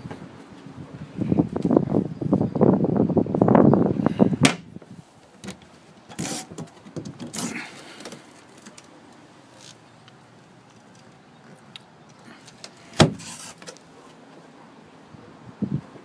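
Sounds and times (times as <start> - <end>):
compartment door scraping: 5.4 - 8.8, 12.5 - 13.8.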